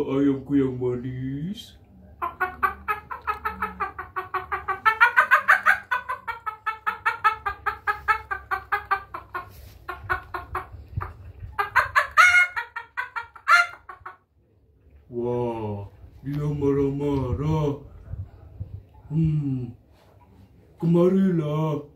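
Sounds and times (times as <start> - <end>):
man imitating chicken clucking: 2.2 - 14.2.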